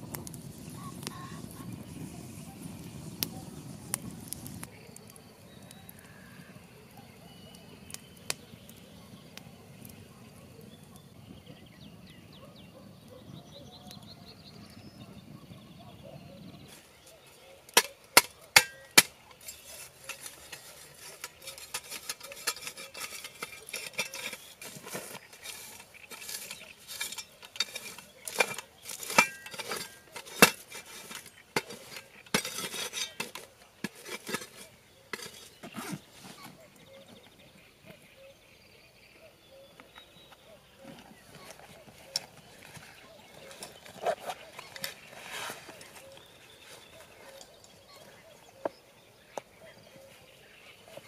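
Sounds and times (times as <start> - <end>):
shovel scraping soil and ashes: 0.0 - 6.4, 16.7 - 37.2, 40.2 - 51.0
birds chirping faintly: 0.1 - 51.0
metal shovel strikes: 17.7 - 36.0.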